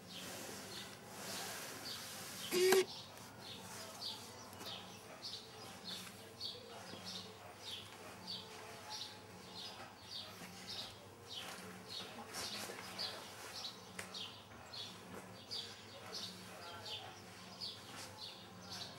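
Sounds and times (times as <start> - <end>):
small bird chirping: 2.4 - 3.0.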